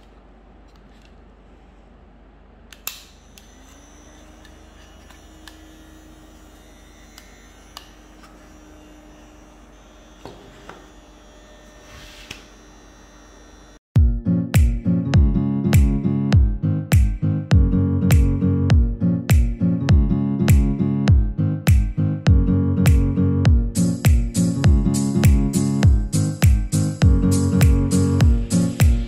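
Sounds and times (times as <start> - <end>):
small motor fan humming: 2.8 - 13.8
guitar music: 14.0 - 29.0.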